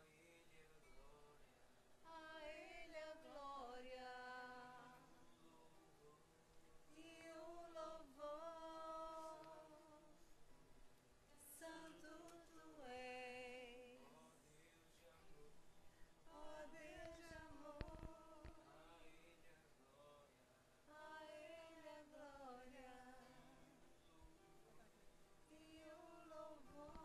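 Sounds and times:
woman singing unaccompanied: 2.0 - 5.3, 6.9 - 10.3, 11.3 - 14.3, 16.2 - 18.8, 20.9 - 23.9, 25.5 - 27.0.

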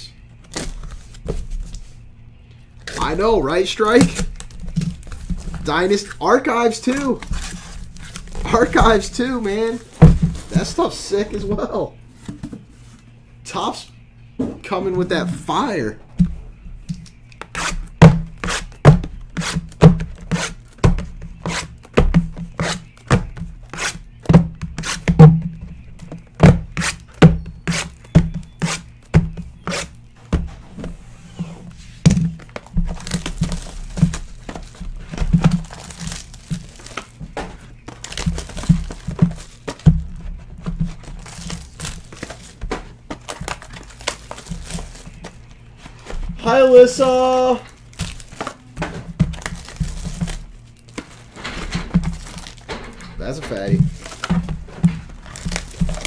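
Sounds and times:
boxes knocking on a desk: 10.0 - 10.7, 20.8 - 23.5, 24.2 - 30.9
shrink wrap crinkling and tearing: 43.2 - 45.4, 55.2 - 56.0.

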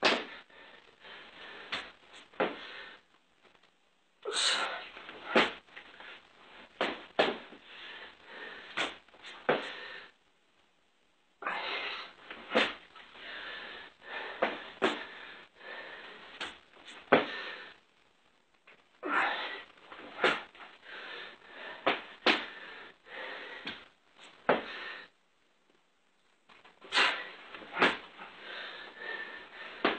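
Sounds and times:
person breathing hard and wheezing: 0.0 - 3.1, 4.2 - 6.3, 7.5 - 10.2, 11.4 - 17.9, 19.0 - 25.2, 26.8 - 29.9.

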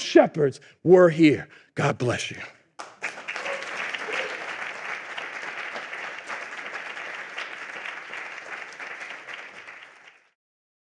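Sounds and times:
audience applauding: 2.8 - 10.4.

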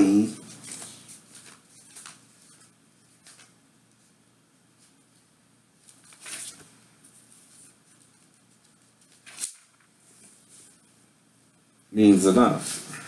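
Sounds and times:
book pages turning: 0.2 - 4.1, 5.8 - 10.8.

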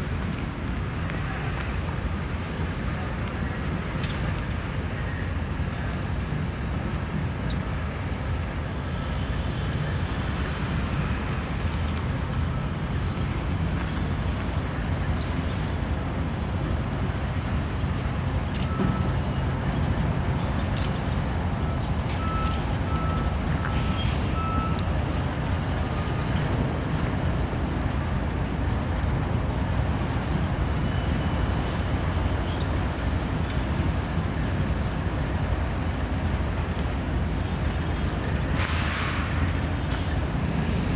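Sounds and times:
diesel locomotives rumbling: 0.0 - 40.9
short faint beeps: 18.6 - 19.2, 21.6 - 24.9.

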